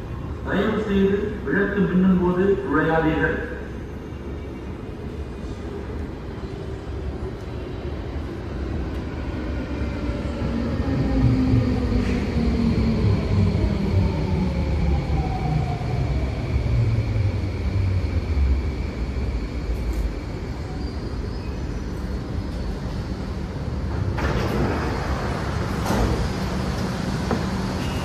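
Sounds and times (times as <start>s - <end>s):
train running rumble: 21.9s - 28.0s.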